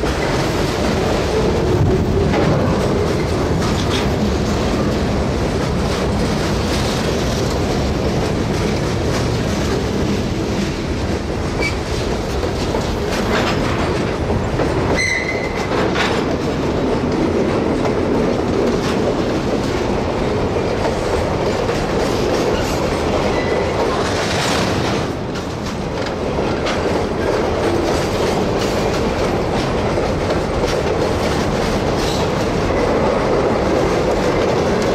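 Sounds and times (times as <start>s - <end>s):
freight cars rolling rumble: 0.0s - 34.9s
wheels clickety-clack on rail joints: 0.0s - 34.9s
high wheel squeal: 15.0s - 15.7s.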